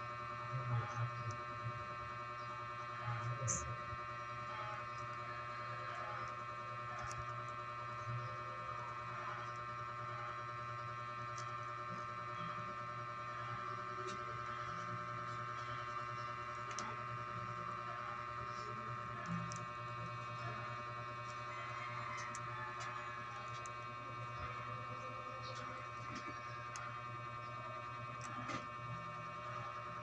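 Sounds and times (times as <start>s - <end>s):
steady electrical hum: 0.0s - 30.0s.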